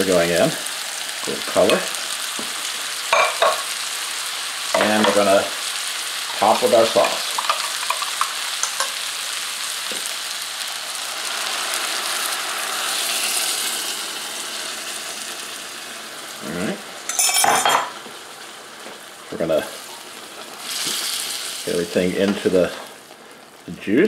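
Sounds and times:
food sizzling in a skillet: 0.0 - 24.0
sauce pouring: 10.1 - 17.2.

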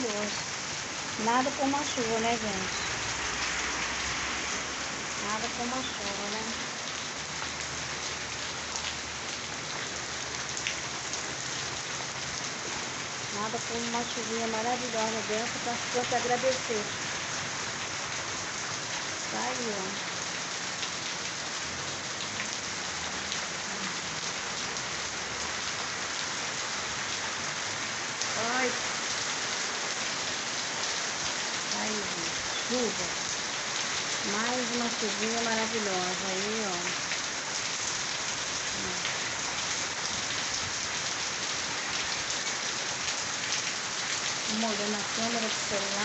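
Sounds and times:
heavy rain falling: 0.0 - 46.0.

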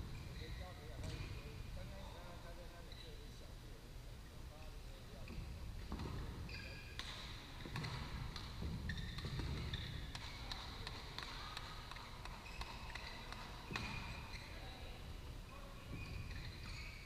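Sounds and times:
shoes squeaking on court: 0.0 - 1.6, 5.0 - 17.0
rackets striking shuttlecocks: 5.8 - 14.3.

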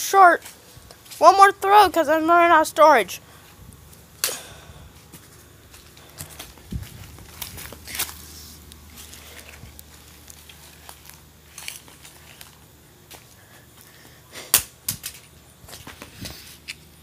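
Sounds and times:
footsteps through grass: 4.9 - 13.9.

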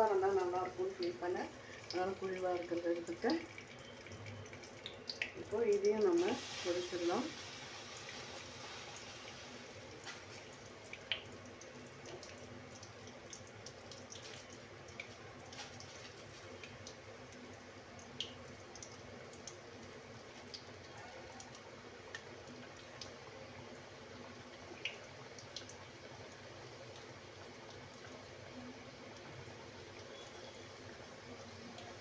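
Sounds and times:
pastry deep-frying in oil: 0.0 - 32.0
oil popping and crackling: 0.1 - 23.5.

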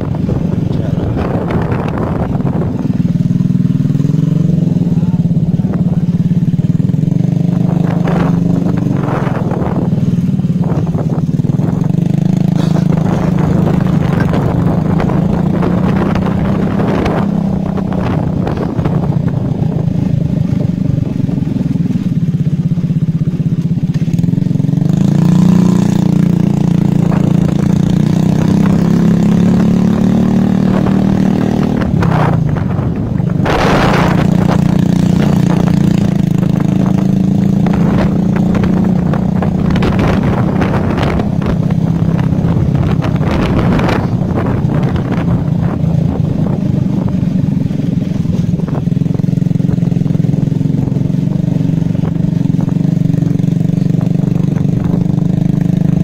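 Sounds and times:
small motorcycle engine running: 0.0 - 56.0.

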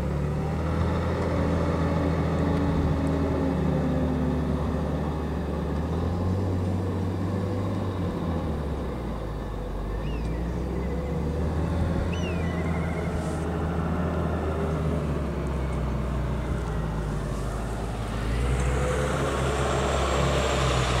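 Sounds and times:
engine humming: 0.0 - 21.0
bird chirping: 9.8 - 13.4.

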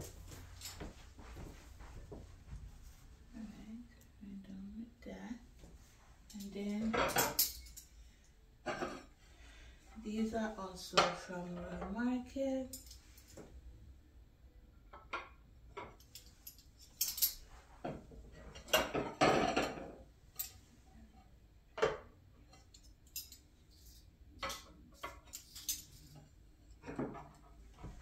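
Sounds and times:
tableware clatter: 6.4 - 7.9, 8.6 - 9.1, 14.9 - 20.7, 21.8 - 28.0
plates clinking on wooden table: 8.6 - 9.1, 18.6 - 20.0.

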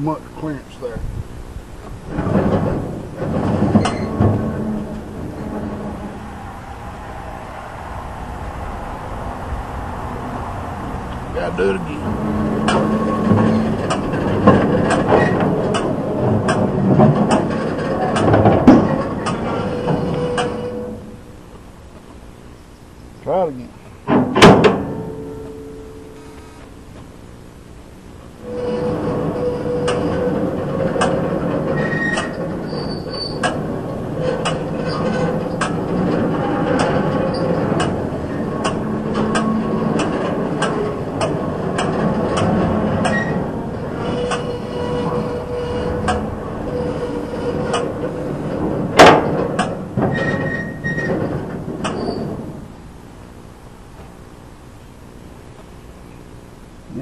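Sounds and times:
baler machine running: 7.9 - 21.3, 27.9 - 53.0
metallic clanks and clicks: 12.0 - 20.7, 33.3 - 52.4.

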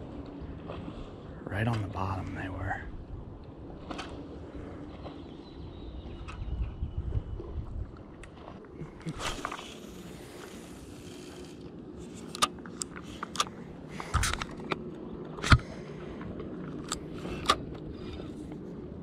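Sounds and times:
fishing line hissing off reel: 9.2 - 11.7
reel clicks and knocks: 10.4 - 17.9.

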